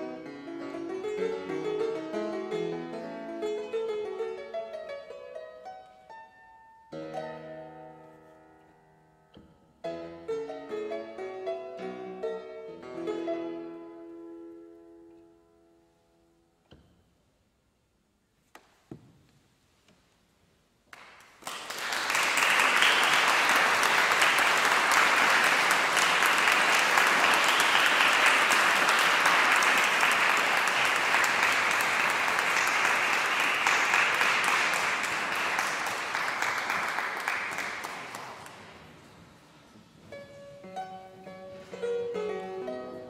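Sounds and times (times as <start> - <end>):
audience clapping: 20.9 - 39.0.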